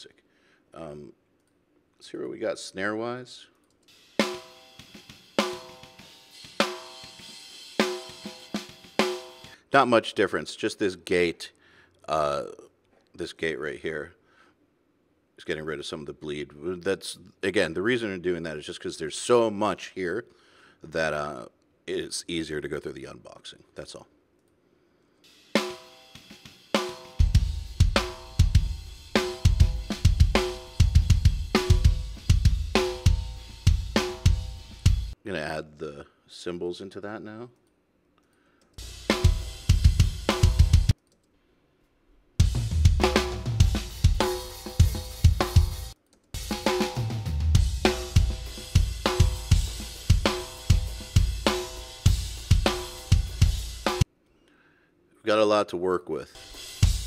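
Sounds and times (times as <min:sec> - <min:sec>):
cymbals and hi-hats: 0:03.9 - 0:09.6, 0:25.2 - 0:35.2, 0:38.8 - 0:41.0, 0:42.4 - 0:54.1, 0:56.3 - 0:57.0.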